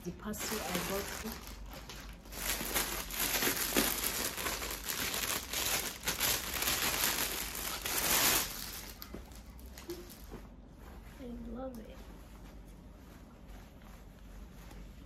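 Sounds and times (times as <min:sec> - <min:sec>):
plastic packaging crinkling: 0:00.2 - 0:10.3.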